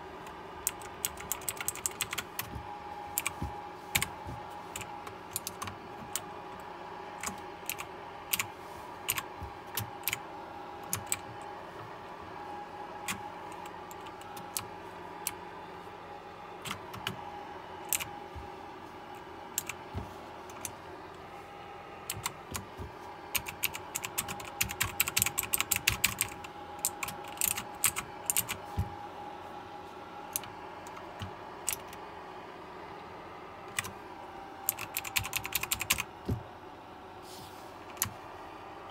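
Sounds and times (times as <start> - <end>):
faint steady whine: 0.0 - 38.9
mechanical keyboard clicking: 0.6 - 2.5, 3.2 - 4.1, 4.8 - 5.8, 7.2 - 8.5, 10.8 - 11.3, 17.9 - 18.1, 22.1 - 22.6, 23.3 - 28.6, 30.3 - 32.0, 34.7 - 36.1.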